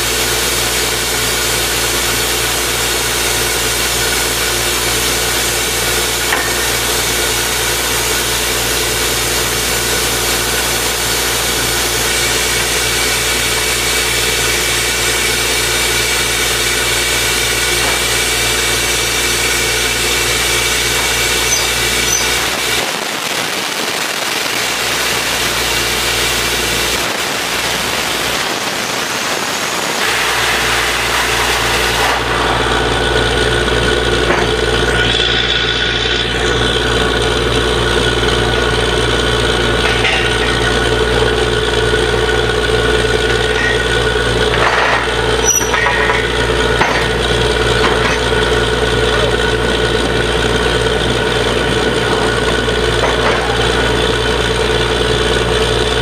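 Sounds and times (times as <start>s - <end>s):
drilling rig engine running: 0.0s - 56.0s.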